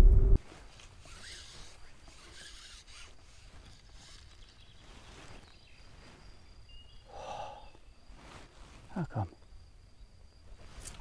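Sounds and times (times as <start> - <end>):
soft rustles: 0.4 - 6.7, 8.0 - 9.0.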